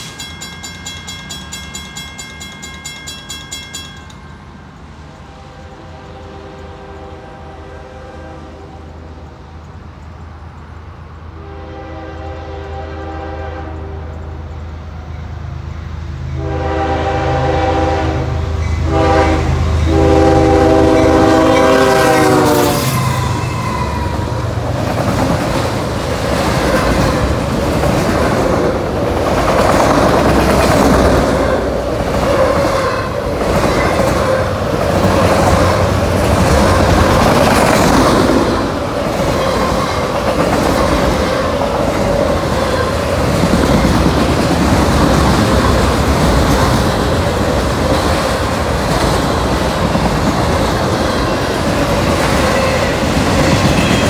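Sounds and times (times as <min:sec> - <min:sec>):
steel wheels clattering: 0:00.0 - 0:04.9
diesel locomotive engine: 0:00.0 - 0:54.0
locomotive horn blasts: 0:05.2 - 0:09.1, 0:11.4 - 0:14.4, 0:16.3 - 0:23.6.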